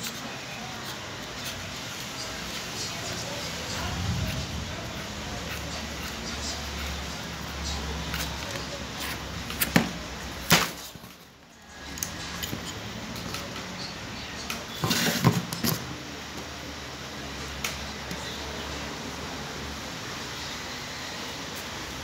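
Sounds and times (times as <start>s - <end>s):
steady low hum: 1.6s - 8.1s.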